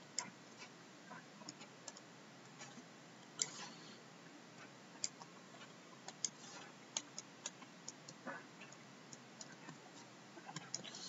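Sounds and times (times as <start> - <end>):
scratchy pen strokes: 6.3 - 6.8.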